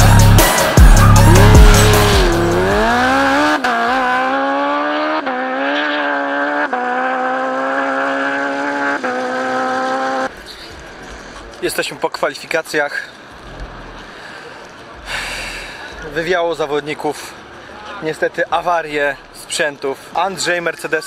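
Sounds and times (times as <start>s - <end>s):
race car accelerating: 0.0s - 11.6s.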